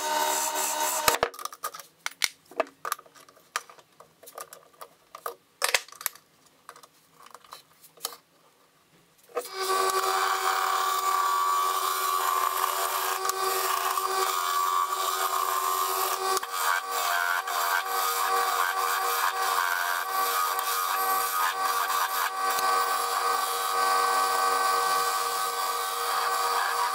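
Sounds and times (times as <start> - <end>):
wood lathe humming: 9.5 - 26.9.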